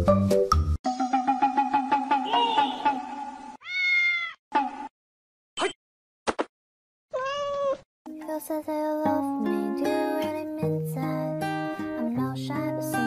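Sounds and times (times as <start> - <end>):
cat chirps: 3.6 - 4.4, 7.1 - 7.8
cat meowing: 3.6 - 4.4, 7.1 - 7.8.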